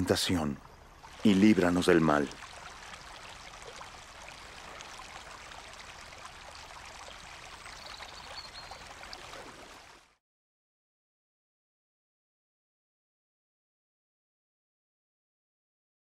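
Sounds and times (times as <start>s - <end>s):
stream running over rocks: 0.0s - 10.2s.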